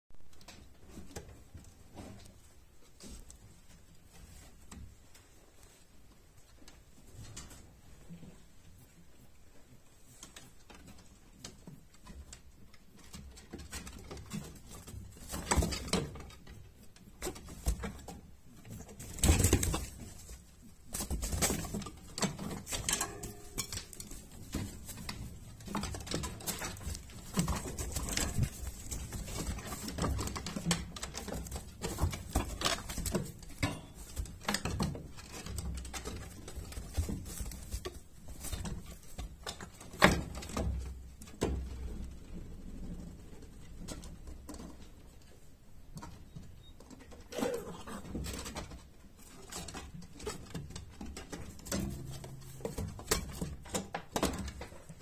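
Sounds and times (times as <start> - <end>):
rabbits rustling on straw: 14.2 - 42.1.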